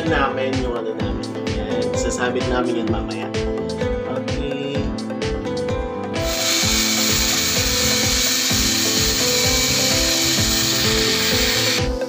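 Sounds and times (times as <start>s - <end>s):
electric drill boring into wall: 6.2s - 12.0s.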